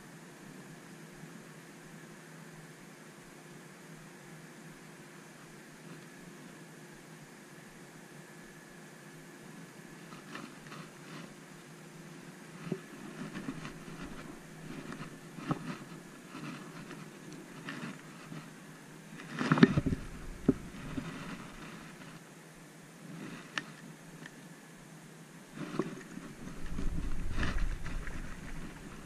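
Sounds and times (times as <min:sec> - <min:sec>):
fishing reel clicks and rustles: 0:12.5 - 0:22.2, 0:25.6 - 0:29.0.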